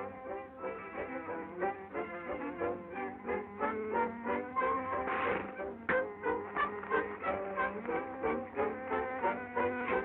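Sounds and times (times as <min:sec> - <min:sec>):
orchestral bowed strings: 0:00.0 - 0:10.0.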